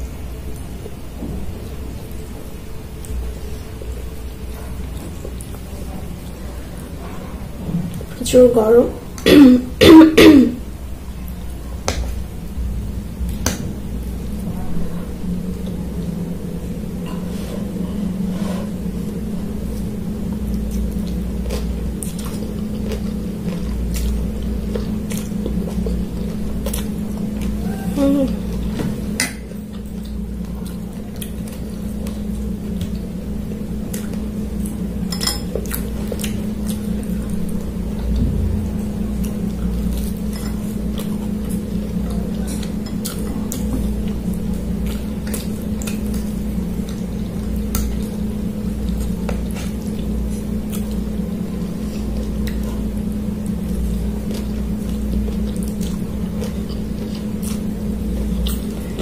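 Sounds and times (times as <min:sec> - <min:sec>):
steady low hum: 0:00.0 - 0:59.0
low hum: 0:31.4 - 0:50.5.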